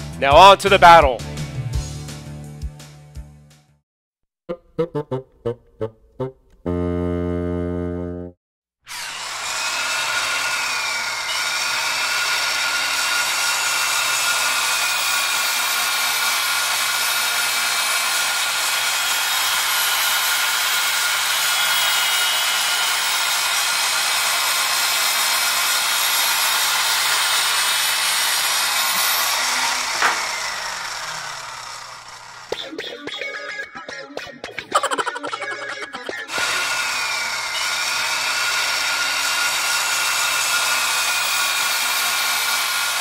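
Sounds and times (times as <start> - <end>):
blade grinding through paper: 8.9 - 32.6, 36.3 - 43.0
table saw whining: 8.9 - 32.6, 36.3 - 43.0
sharp knock: 30.0 - 30.4.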